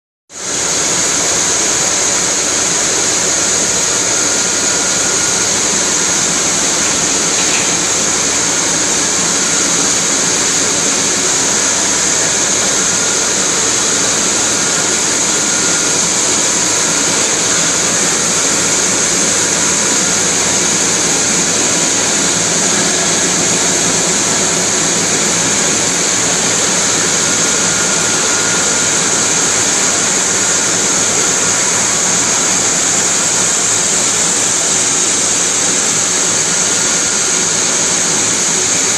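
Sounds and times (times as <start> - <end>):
wire bunching machines running: 0.4 - 38.9.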